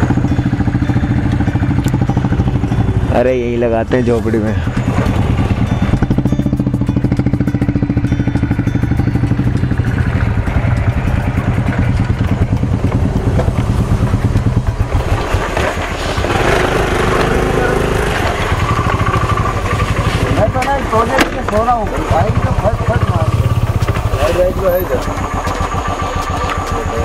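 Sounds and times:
motorcycle engine idling: 0:00.0 - 0:27.0
voices: 0:03.0 - 0:05.2, 0:16.4 - 0:27.0.

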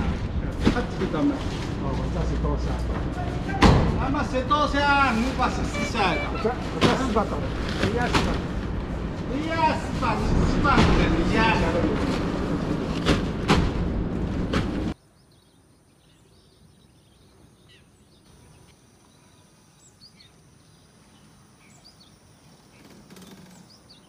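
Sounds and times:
truck cab road noise: 0:00.0 - 0:15.0
faint birds chirping: 0:14.9 - 0:24.0.

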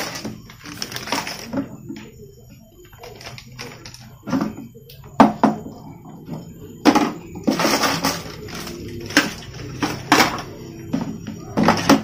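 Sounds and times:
plastic scraping and rustling: 0:00.0 - 0:02.1, 0:02.9 - 0:04.7, 0:06.9 - 0:12.0.

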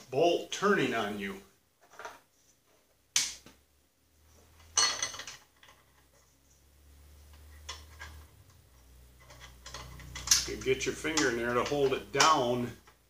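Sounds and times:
faint low hum: 0:03.6 - 0:13.0
bolts clicking and tapping: 0:07.2 - 0:13.0.

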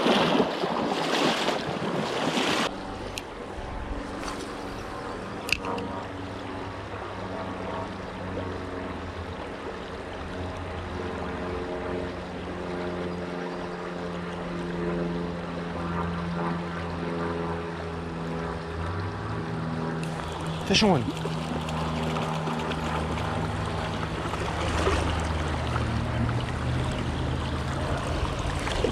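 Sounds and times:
low hum: 0:02.6 - 0:28.9
creek water rushing: 0:18.5 - 0:28.9.

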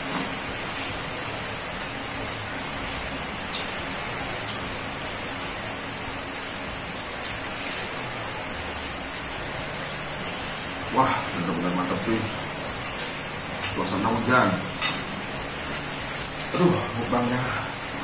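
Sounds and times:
steady rain falling: 0:00.0 - 0:18.0
cutlery clinking on plates: 0:14.8 - 0:15.1.

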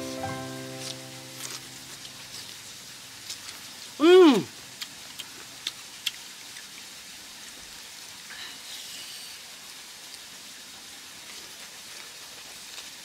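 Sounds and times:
background hiss: 0:00.0 - 0:05.4.

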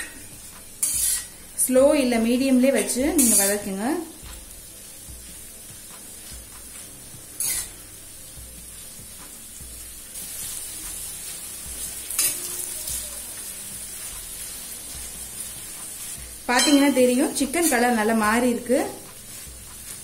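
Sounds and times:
metal spatula scraping pan: 0:00.0 - 0:01.4, 0:02.7 - 0:03.8, 0:07.4 - 0:07.8, 0:12.1 - 0:12.7, 0:16.5 - 0:18.1
chicken sizzling in oil: 0:00.0 - 0:20.0.

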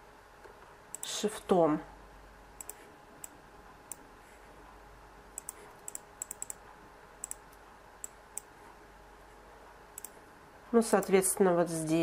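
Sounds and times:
computer mouse clicking: 0:00.9 - 0:01.1, 0:02.6 - 0:04.0, 0:05.3 - 0:06.6, 0:07.2 - 0:08.5, 0:10.0 - 0:10.2.

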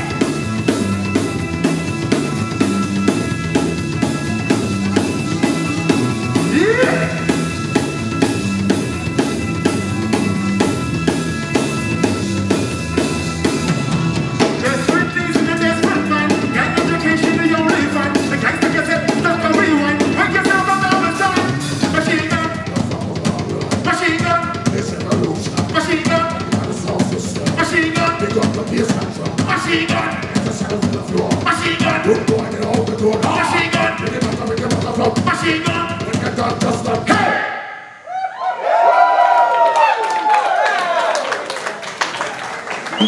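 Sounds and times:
wavering melodic lead line: 0:00.0 - 0:22.0
drum kit beat: 0:00.0 - 0:37.4.

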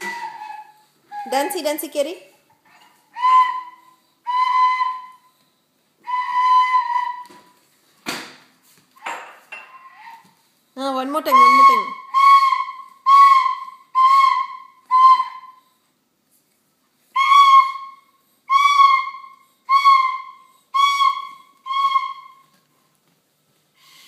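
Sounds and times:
child tooting wooden flute: 0:00.0 - 0:01.6, 0:03.1 - 0:05.4, 0:06.0 - 0:07.5, 0:11.3 - 0:15.7, 0:17.1 - 0:22.5.

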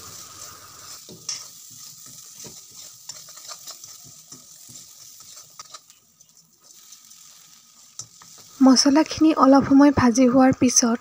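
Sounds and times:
metal spatula scraping pan: 0:00.0 - 0:08.6
light frying sizzle: 0:00.0 - 0:11.0.

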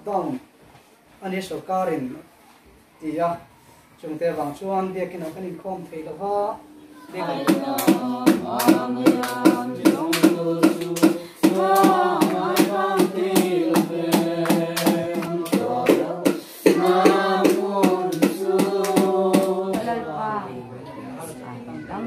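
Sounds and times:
group singing a hymn: 0:06.9 - 0:21.3
percussion beat: 0:07.2 - 0:20.0.

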